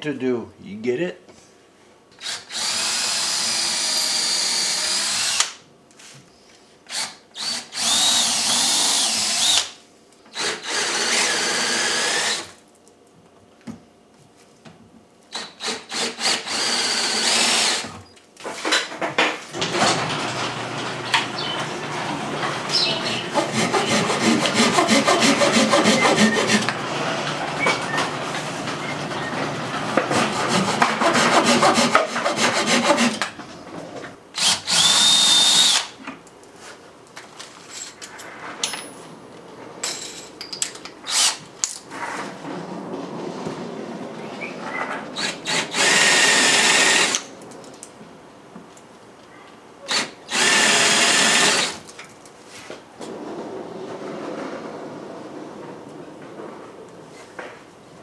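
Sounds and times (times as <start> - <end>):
cordless drill boring into wood: 2.2 - 5.6, 6.9 - 9.7, 10.3 - 12.6, 15.3 - 17.9, 22.6 - 26.7, 34.4 - 35.9, 41.1 - 41.4, 45.2 - 47.2, 49.9 - 51.8
hand saw cutting wood: 22.0 - 27.1, 29.9 - 33.3.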